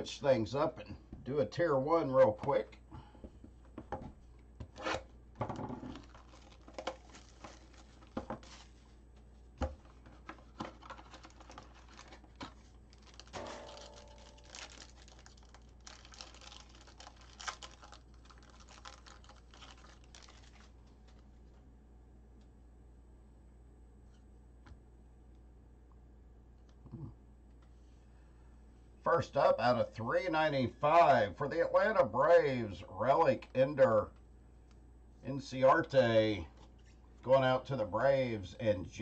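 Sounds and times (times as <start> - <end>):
foil pack crinkling: 5.6 - 9.0, 9.8 - 21.5
cards being handled: 5.8 - 21.3.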